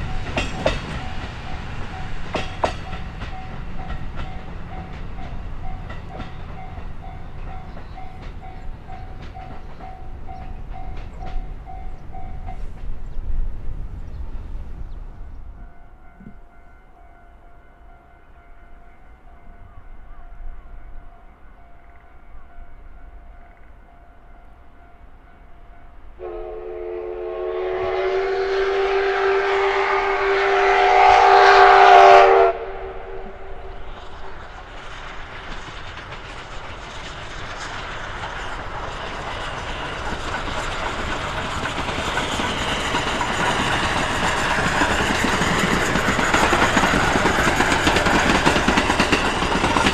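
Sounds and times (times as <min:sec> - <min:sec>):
train running noise: 0:00.0 - 0:49.9
steam locomotive whistle: 0:26.2 - 0:34.4.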